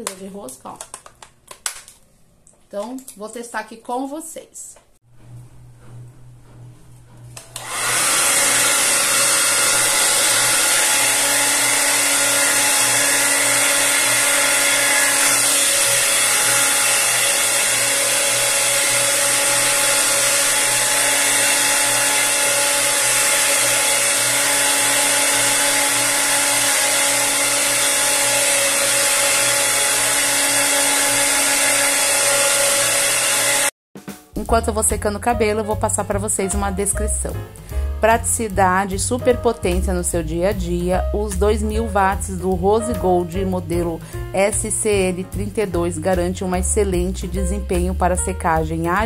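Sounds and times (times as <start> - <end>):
hair dryer blowing: 7.3 - 33.8.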